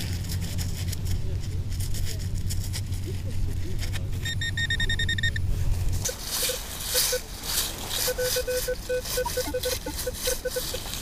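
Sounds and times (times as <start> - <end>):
metal detector beeps: 4.2 - 5.4, 6.0 - 7.3, 8.0 - 11.0
scratchy noises: 5.8 - 11.0.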